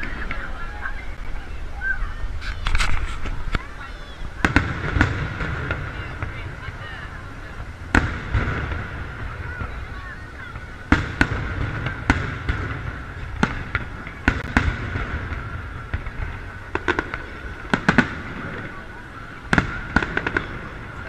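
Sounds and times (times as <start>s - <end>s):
crowd chatter: 0.0s - 21.0s
firework shells booming: 4.4s - 21.0s.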